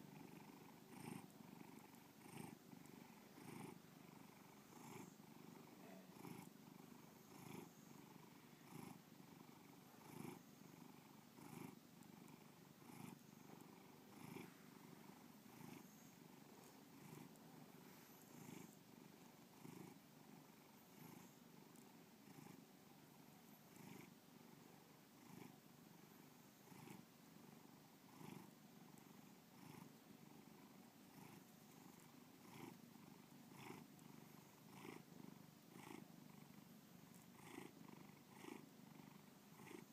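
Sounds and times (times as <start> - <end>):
cat purring: 0.0 - 39.9.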